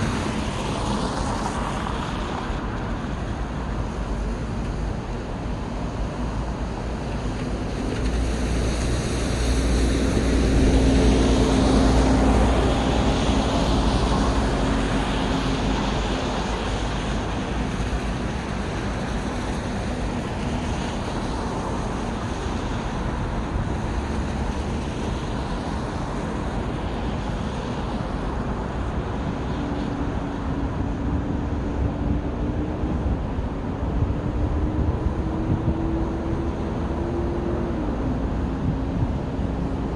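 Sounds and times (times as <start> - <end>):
passing road traffic: 0.0 - 39.9
vehicle engine hum: 0.0 - 39.9.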